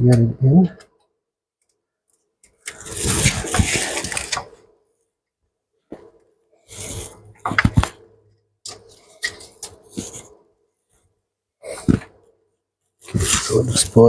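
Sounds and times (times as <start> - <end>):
gloved hand rustling and scraping: 2.2 - 4.7, 6.0 - 14.0.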